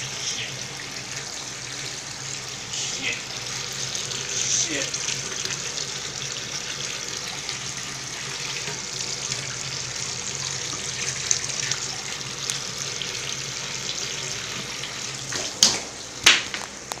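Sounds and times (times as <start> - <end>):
water running into tank: 0.0 - 17.0.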